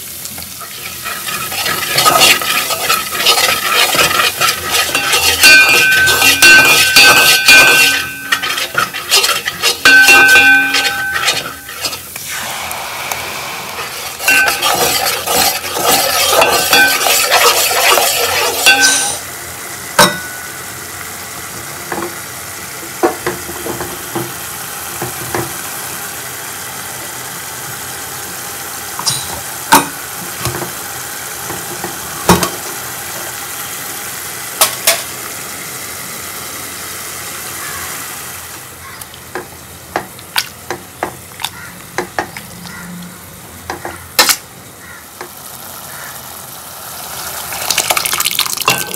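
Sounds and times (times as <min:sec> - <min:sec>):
food sizzling in a pan: 0:00.0 - 0:48.9
spoon knocking against pan: 0:04.4 - 0:11.7.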